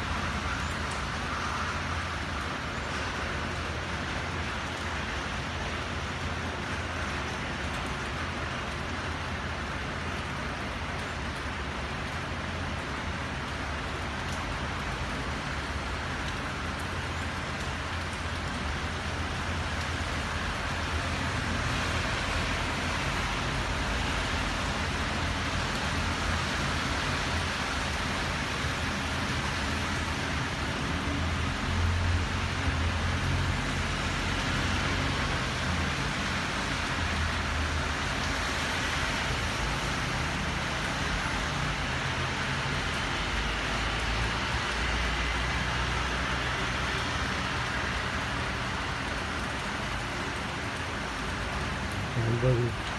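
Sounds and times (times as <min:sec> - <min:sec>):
heavy rain falling: 0:00.0 - 0:52.9
traffic on wet road: 0:00.0 - 0:52.9.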